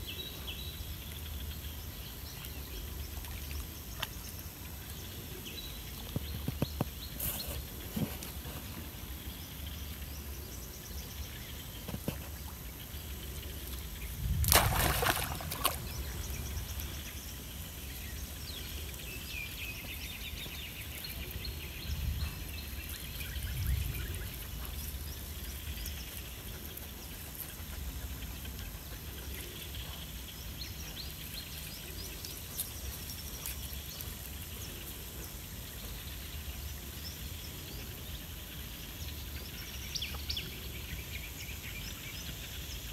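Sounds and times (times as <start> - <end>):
faint birds chirping: 0.0 - 42.9
monkey splashing in water: 14.4 - 16.2.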